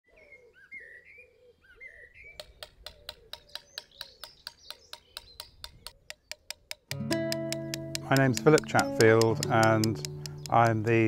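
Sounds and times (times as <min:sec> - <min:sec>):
birds chirping: 0:00.1 - 0:11.0
mallet striking chisel on stone: 0:02.4 - 0:11.0.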